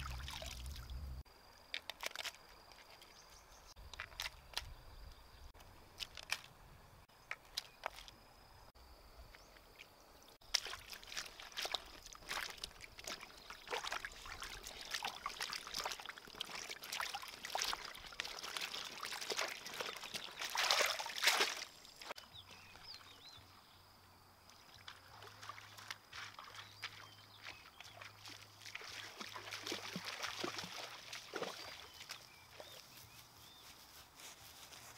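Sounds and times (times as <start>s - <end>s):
hands splashing in water: 0.0s - 1.0s, 10.4s - 22.2s, 27.8s - 32.2s.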